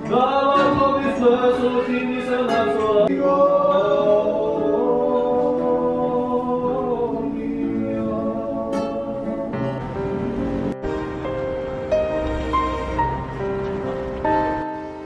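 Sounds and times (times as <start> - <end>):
man singing: 0.0 - 9.8
acoustic guitar: 0.0 - 15.0.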